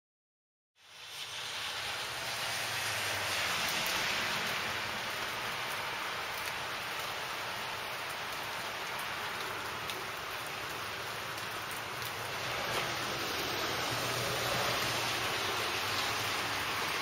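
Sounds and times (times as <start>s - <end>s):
rain falling on pavement: 0.8s - 17.0s
faint raindrop ticks: 3.6s - 13.0s.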